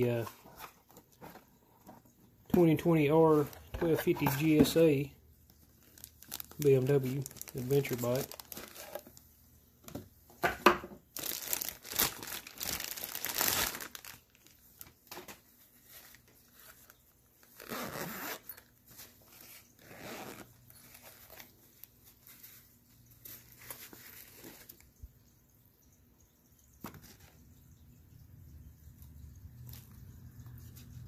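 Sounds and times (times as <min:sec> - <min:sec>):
plastic bag crinkling: 0:02.5 - 0:09.3, 0:11.1 - 0:24.8
zipper being opened: 0:17.6 - 0:18.7, 0:19.8 - 0:21.0.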